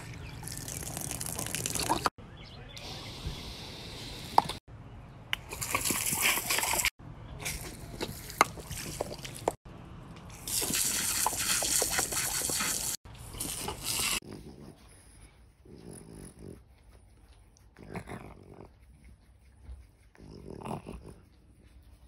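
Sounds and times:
garden hose spraying water: 0.0s - 2.1s, 5.4s - 9.6s, 10.3s - 14.2s.

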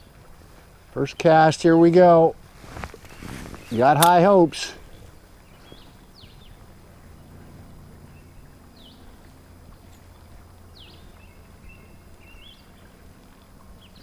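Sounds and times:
songbird chirping: 1.0s - 6.8s, 7.9s - 13.0s.

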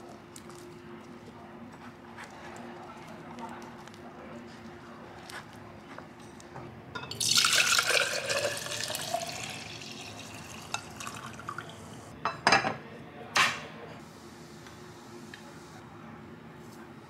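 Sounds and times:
liquid pouring into a glass: 7.1s - 12.0s.

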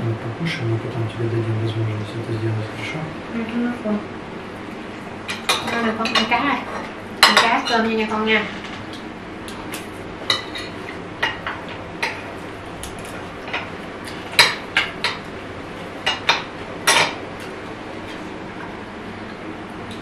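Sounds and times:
utensils clinking against plates: 5.3s - 9.0s, 9.6s - 15.2s.

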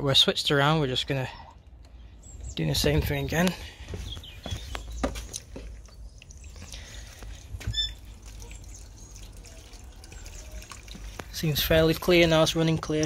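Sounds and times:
water trickling into a tub: 4.5s - 13.0s.

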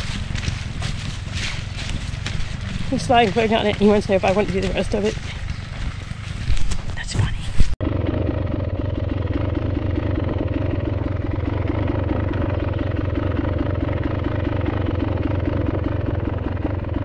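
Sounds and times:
vehicle engine running steadily: 0.0s - 17.0s.

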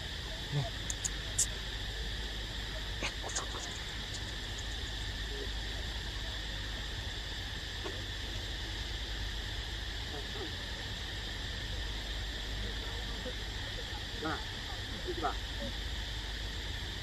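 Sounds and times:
insects droning in trees: 0.0s - 17.0s
short clicks and taps: 0.9s - 1.5s.

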